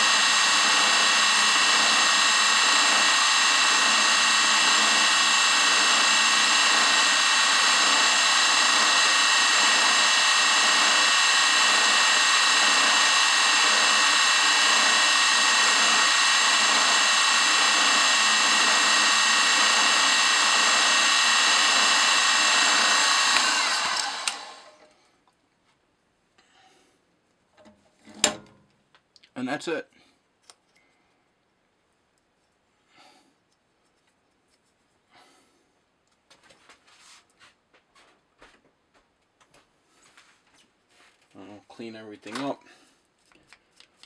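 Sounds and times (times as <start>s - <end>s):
milling machine whine: 0.0s - 24.9s.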